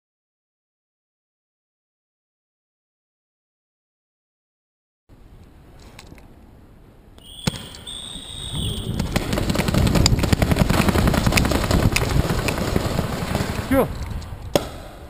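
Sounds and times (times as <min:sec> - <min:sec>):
paintball markers firing rapidly: 0:07.4 - 0:13.8
players running: 0:07.6 - 0:14.2.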